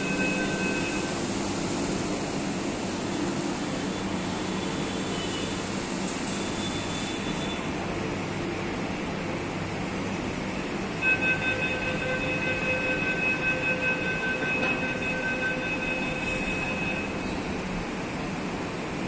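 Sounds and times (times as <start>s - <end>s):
train rumbling: 0.0s - 19.0s.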